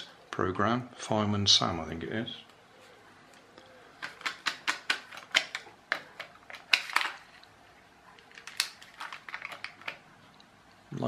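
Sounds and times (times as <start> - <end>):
plastic wheel handled: 4.0 - 7.5, 8.2 - 10.1.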